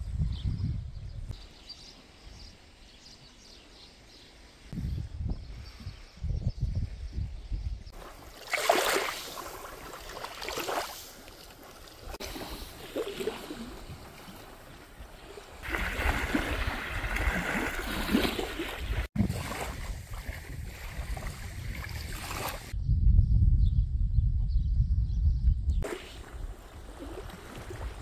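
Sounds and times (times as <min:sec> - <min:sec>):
wind buffeting microphone: 0:00.0 - 0:01.4, 0:04.7 - 0:08.1, 0:12.0 - 0:28.0
small waves lapping on shore: 0:08.0 - 0:22.7, 0:25.8 - 0:28.0.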